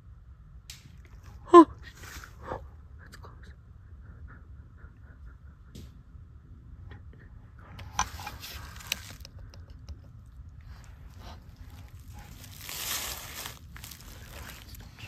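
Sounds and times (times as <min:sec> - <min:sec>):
rustling and crunching: 0:07.8 - 0:09.6, 0:10.3 - 0:15.0.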